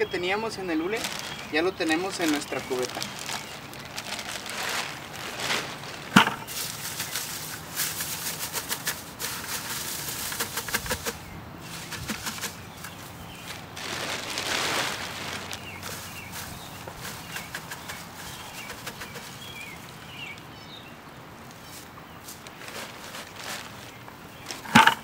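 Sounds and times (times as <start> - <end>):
plastic sheeting crinkling: 0.4 - 20.5, 21.5 - 25.0.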